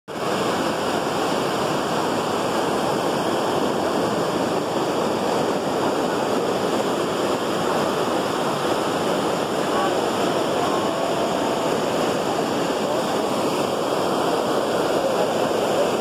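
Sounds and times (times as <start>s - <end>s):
water rushing over weir: 0.1s - 16.0s.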